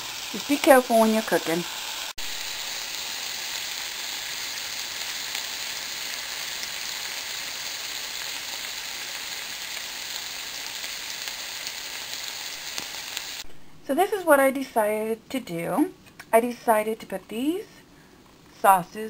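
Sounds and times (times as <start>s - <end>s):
steak sizzling in a frying pan: 0.0s - 13.4s.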